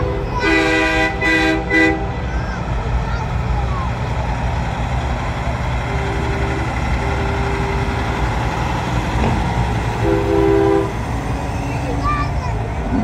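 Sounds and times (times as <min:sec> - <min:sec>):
distant horn: 0:00.0 - 0:02.3, 0:05.6 - 0:11.4
diesel truck engines rumbling: 0:00.0 - 0:13.0.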